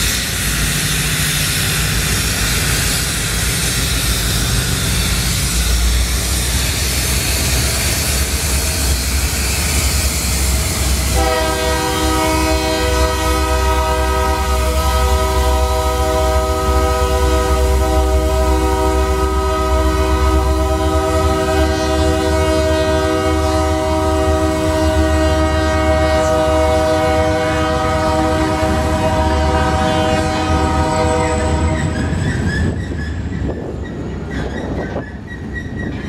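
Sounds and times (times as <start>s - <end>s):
locomotive air horn: 10.9s - 32.1s
freight cars clattering on rails: 31.1s - 36.0s.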